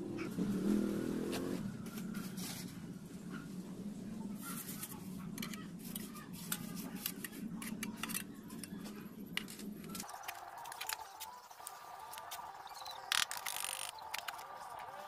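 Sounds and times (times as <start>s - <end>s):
trowel scraping mortar in metal pot: 4.4s - 11.0s.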